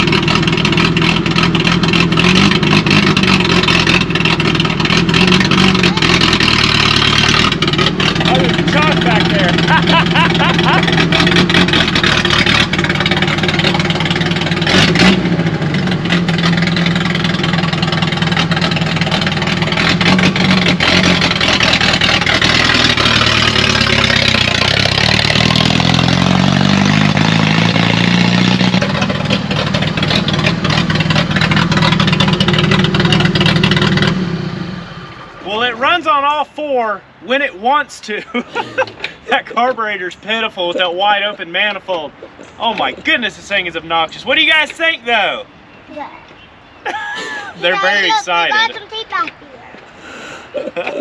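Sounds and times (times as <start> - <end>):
pickup truck engine revving: 0.0 - 36.2
person talking: 8.2 - 10.8, 35.4 - 45.3, 47.4 - 49.7.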